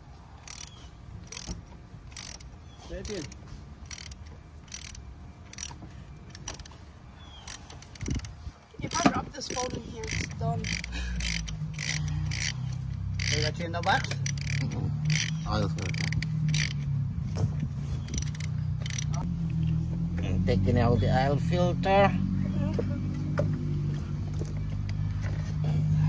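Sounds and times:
socket ratchet clicking: 0.4 - 6.8, 7.4 - 16.9, 18.0 - 19.2.

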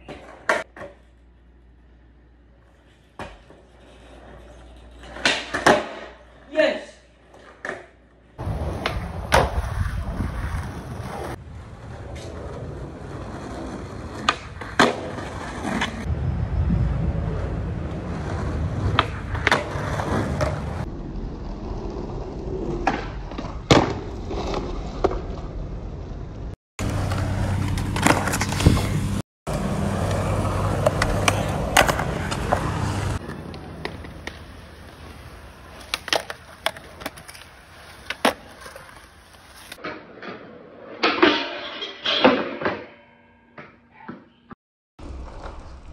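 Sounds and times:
skateboard wheels rolling on concrete: 0.0 - 41.4, 44.4 - 45.9
skateboard clacks: 29.6 - 40.2.

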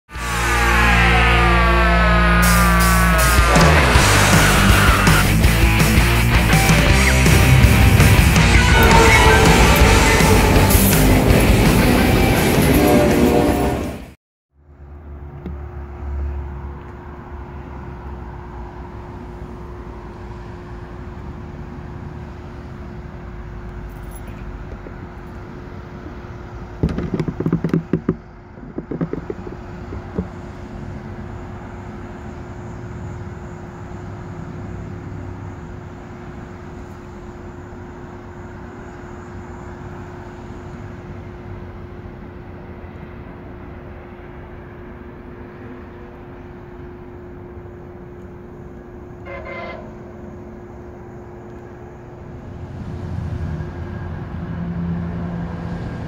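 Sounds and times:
traffic rumble: 14.6 - 56.0
loud clattering knocks: 26.7 - 30.4.

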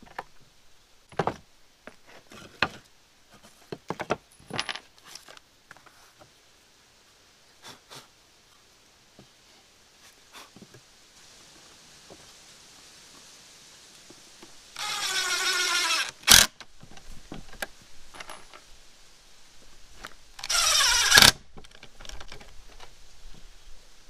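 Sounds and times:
wood and screws handled: 1.1 - 6.0, 14.8 - 18.7, 20.0 - 23.0
power driver driving screws: 14.8 - 16.6, 20.4 - 21.4.

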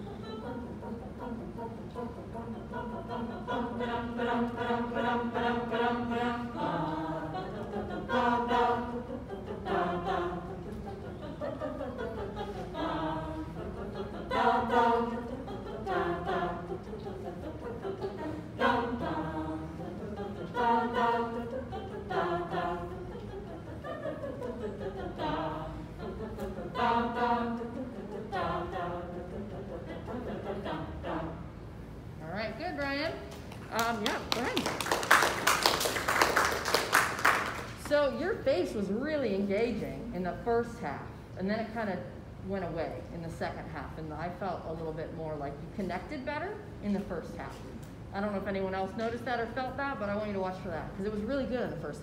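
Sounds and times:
choir singing a cappella: 0.0 - 32.3.

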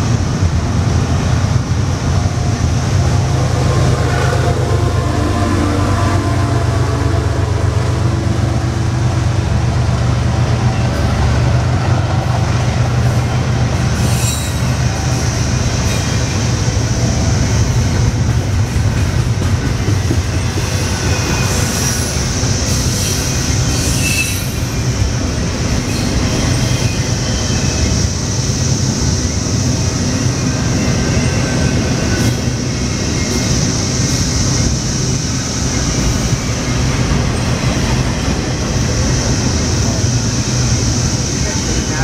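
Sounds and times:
diesel locomotive: 0.0 - 42.0
freight train rumbling past: 0.0 - 42.0
train wheel squeals: 13.8 - 18.0, 19.0 - 41.9.

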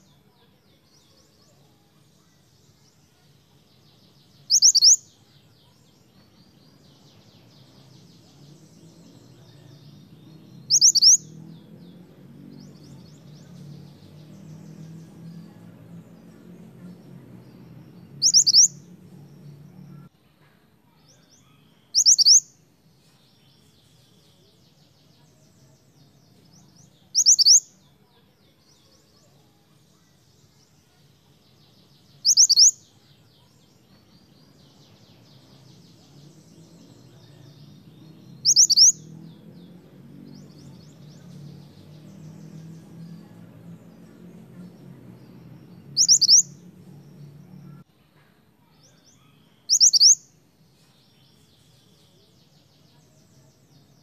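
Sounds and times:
faint rapid twittering: 4.4 - 5.1, 10.6 - 11.3, 17.9 - 20.1, 21.9 - 22.5, 27.1 - 27.6, 36.0 - 39.0, 46.0 - 47.8, 49.6 - 50.2.

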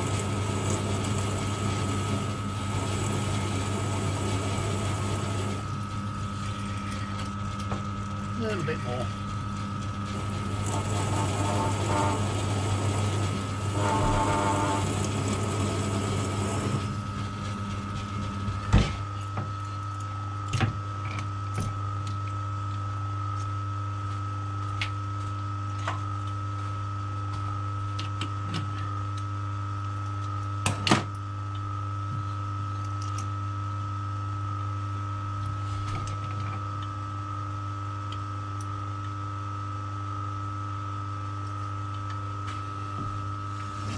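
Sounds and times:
metal lathe humming: 10.1 - 17.1
drill cutting steel: 10.5 - 15.1.

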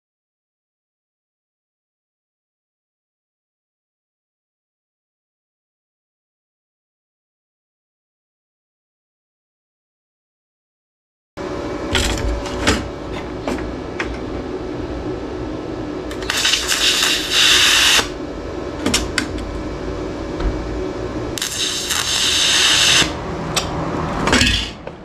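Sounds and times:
steady hum: 11.4 - 25.0
welding arc hissing: 16.1 - 18.2, 21.3 - 23.8, 24.4 - 24.8.

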